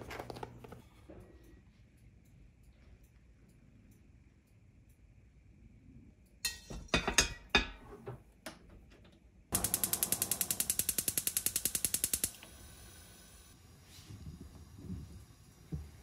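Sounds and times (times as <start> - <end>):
gas stove igniter clicking: 9.5 - 13.6.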